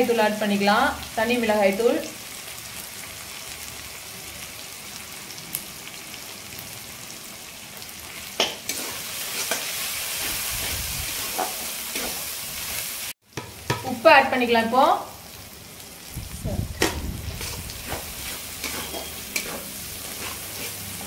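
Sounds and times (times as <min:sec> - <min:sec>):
onions sizzling in oil: 0:00.0 - 0:21.0
metal turner scraping pan: 0:08.7 - 0:12.3, 0:16.8 - 0:21.0
turner knocking on pan: 0:13.4 - 0:13.8.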